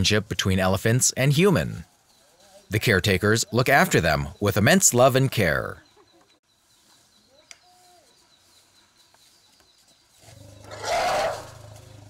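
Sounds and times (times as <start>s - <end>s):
rough elephant call: 10.3s - 12.0s.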